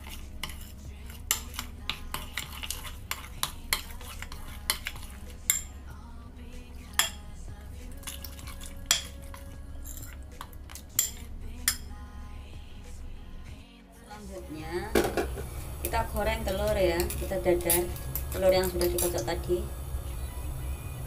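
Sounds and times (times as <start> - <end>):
metal spoon scraping a ceramic bowl: 0.0 - 5.8, 8.0 - 11.9.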